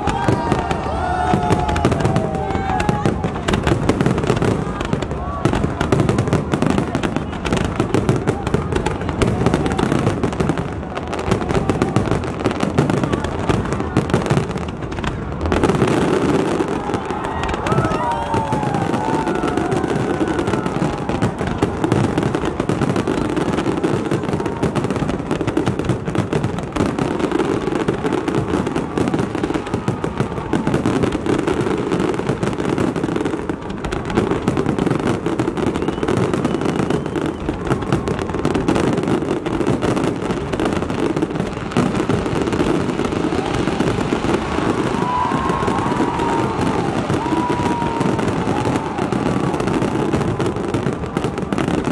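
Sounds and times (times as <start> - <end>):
fireworks bangs and crackling: 0.0 - 51.9
firework whistles: 35.4 - 38.1.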